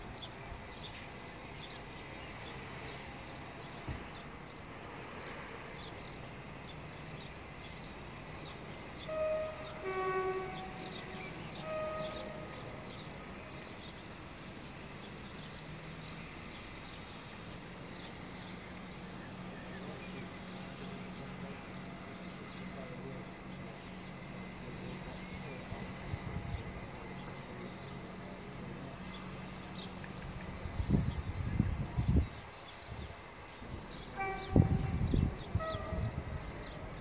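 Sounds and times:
two-tone train horn: 9.0 - 13.6, 34.1 - 37.0.

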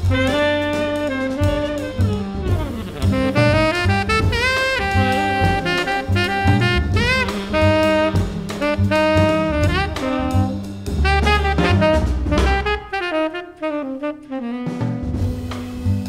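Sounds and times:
double bass: 0.0 - 16.0
drum kit with cymbals: 0.0 - 16.0
saxophone melody: 0.0 - 16.0.

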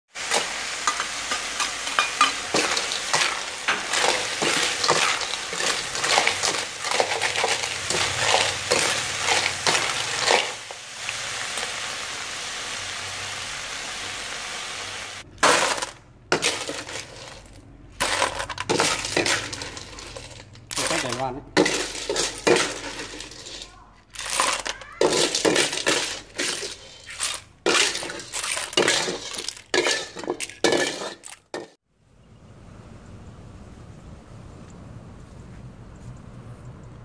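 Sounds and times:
steady sizzle: 0.1 - 15.3
ladle scraping wok: 0.2 - 12.2, 15.2 - 31.8
shells clinking into metal tray: 0.3 - 10.6, 15.4 - 31.7.

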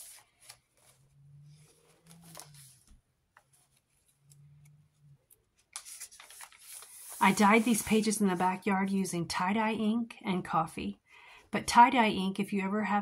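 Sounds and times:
paper pages rustling: 0.0 - 4.4, 5.4 - 8.6.

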